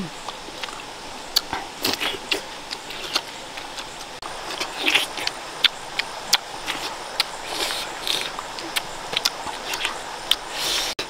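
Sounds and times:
wet chewing and lip smacks: 0:00.2 - 0:10.9.

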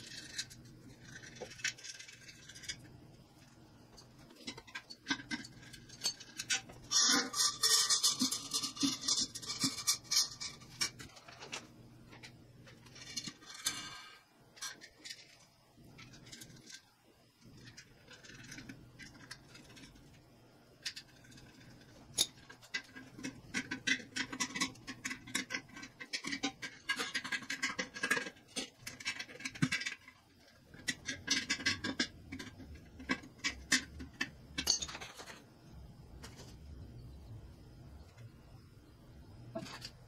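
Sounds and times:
wrench clinking and scraping: 0:03.9 - 0:11.6, 0:30.8 - 0:35.4.

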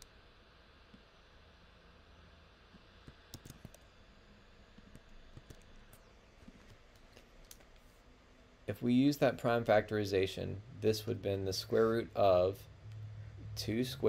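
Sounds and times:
low room hiss: 0:00.0 - 0:14.0
mouse and keyboard clicks: 0:03.3 - 0:03.8.

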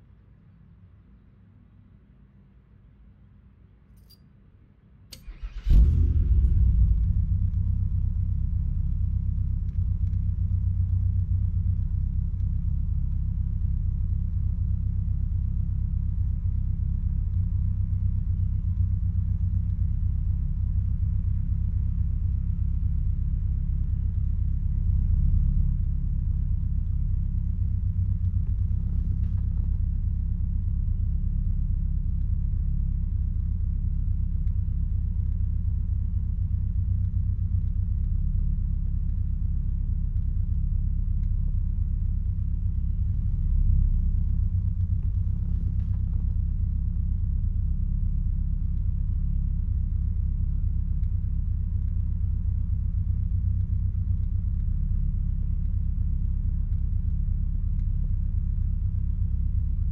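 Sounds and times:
car engine starting and idling: 0:05.1 - 0:12.9.

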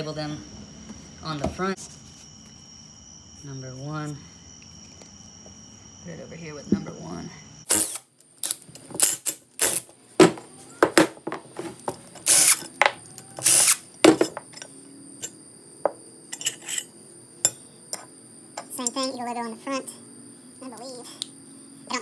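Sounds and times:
cordless power tool spinning: 0:07.7 - 0:09.8, 0:12.2 - 0:12.7, 0:13.4 - 0:13.8.

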